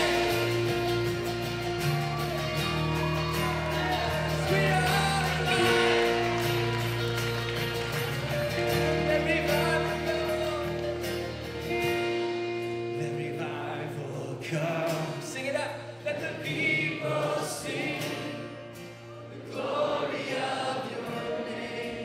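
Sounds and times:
band playing slow chords: 0.0s - 15.1s
bass: 0.0s - 16.8s.

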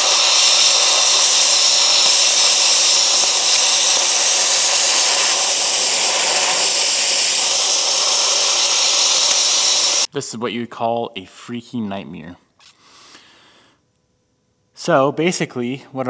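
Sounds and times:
air blow gun hissing: 0.0s - 10.1s.

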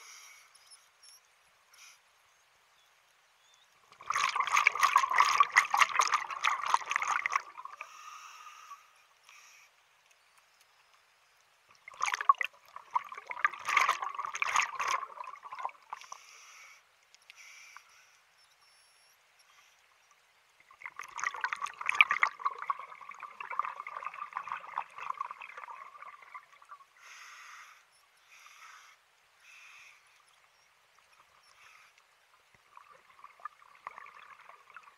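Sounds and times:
underwater breath bubbles: 4.0s - 8.9s, 11.9s - 16.7s, 20.7s - 27.8s, 32.7s - 34.9s.

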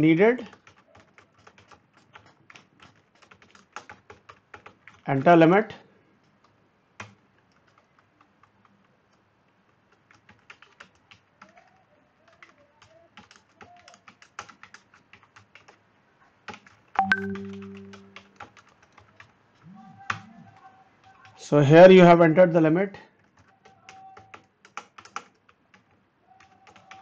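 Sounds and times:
keyboard key clicks: 16.5s - 18.5s.

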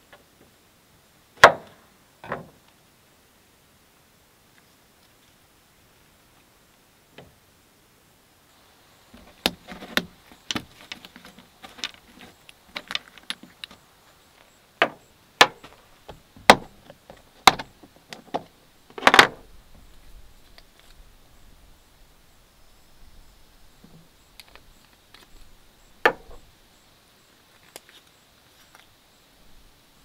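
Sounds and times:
spice tubes clicking and knocking: 9.2s - 13.8s.

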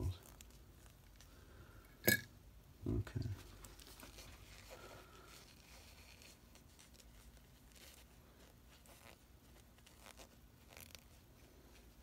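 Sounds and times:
cotton wadding being pulled apart: 3.8s - 12.0s.

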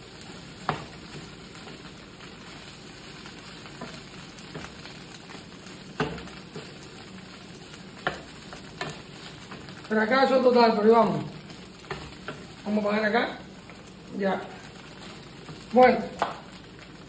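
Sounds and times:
food sizzling in a frying pan: 0.0s - 17.0s
wooden spoon clicking on pan: 8.0s - 9.6s, 16.1s - 16.5s.

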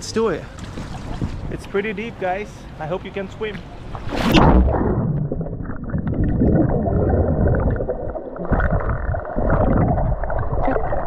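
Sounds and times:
swimmer moving underwater: 3.8s - 11.0s
gurgling air bubbles: 4.2s - 11.0s.

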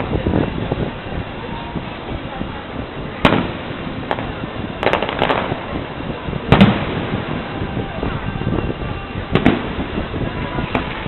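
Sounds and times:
firework shells bursting: 3.2s - 7.6s.

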